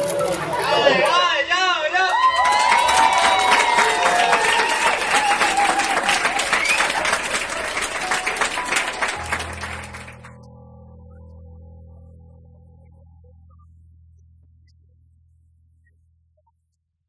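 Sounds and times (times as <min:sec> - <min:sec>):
people cheering: 0:00.0 - 0:10.4
crowd clapping rapidly: 0:02.0 - 0:10.4
soft music: 0:02.6 - 0:15.5.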